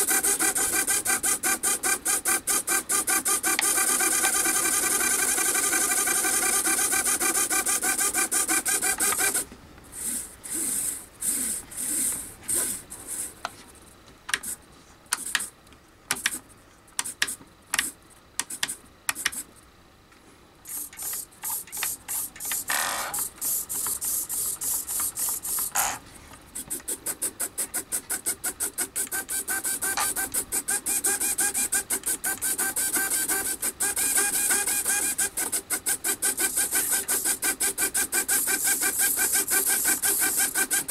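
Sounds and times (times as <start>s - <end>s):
servo gears whirring: 0.0s - 9.4s, 10.0s - 13.3s, 20.7s - 26.0s, 26.6s - 40.9s.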